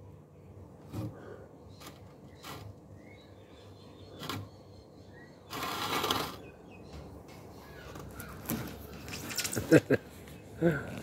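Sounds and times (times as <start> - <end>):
faint bird chirps: 1.2 - 9.5.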